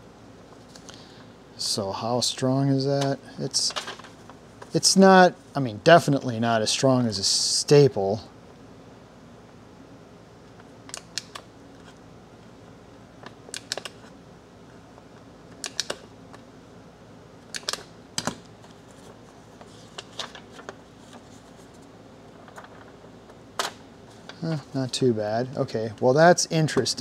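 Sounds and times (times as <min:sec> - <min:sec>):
stapler clicking: 0:15.6 - 0:16.0, 0:17.5 - 0:18.4.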